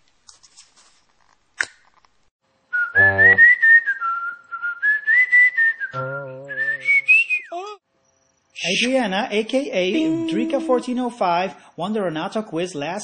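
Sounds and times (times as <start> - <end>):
person whistling a tune: 2.8 - 7.8
low notes: 6.0 - 6.8, 10.0 - 11.2.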